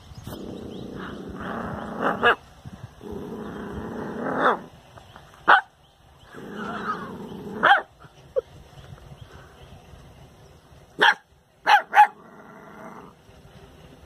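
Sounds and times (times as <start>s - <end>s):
dog growling: 0.3s - 2.4s, 3.0s - 4.7s, 6.3s - 7.7s, 12.1s - 13.2s
dog barking: 5.5s - 5.7s, 7.6s - 7.9s, 11.0s - 12.2s.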